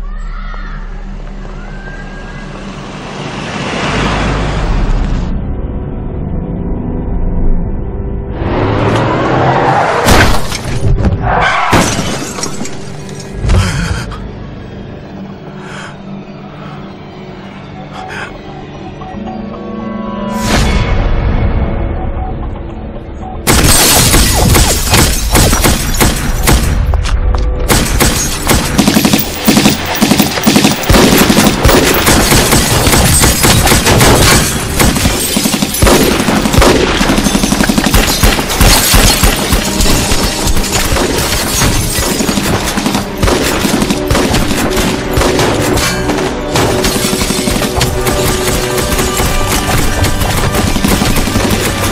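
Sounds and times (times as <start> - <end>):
glass shattering: 11.7 - 12.9, 23.5 - 26.5, 27.8 - 36.2, 37.1 - 43.1
automatic gunfire: 27.7 - 41.2.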